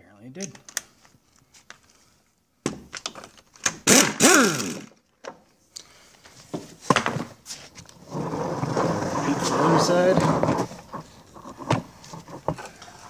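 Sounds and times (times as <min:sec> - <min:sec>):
impact wrench rattling: 0:03.6 - 0:05.0.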